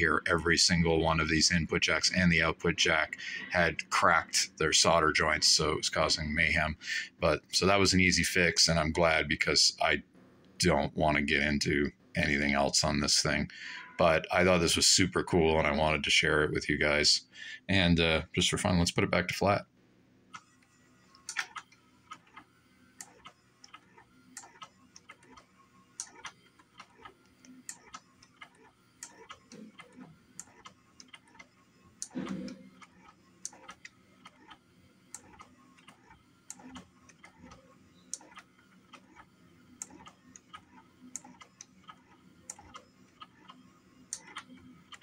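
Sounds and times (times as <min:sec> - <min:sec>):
motorized slider mechanism moving: 0:20.3 - 0:45.0.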